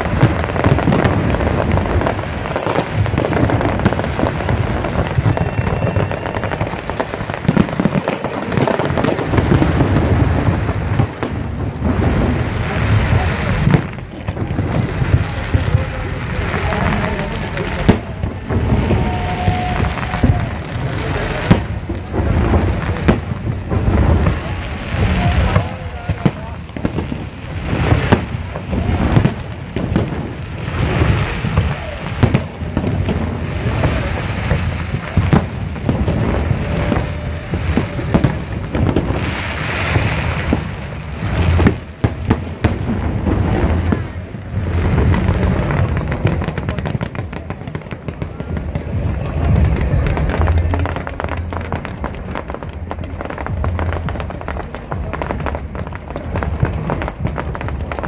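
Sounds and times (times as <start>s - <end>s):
fireworks bangs: 0.0s - 58.0s
fireworks crackling: 0.0s - 58.0s
sharp fireworks cracks: 0.0s - 58.0s.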